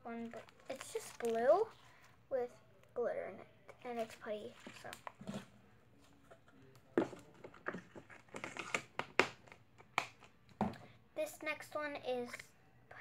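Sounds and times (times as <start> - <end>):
plastic containers clicking and knocking: 6.3 - 10.8.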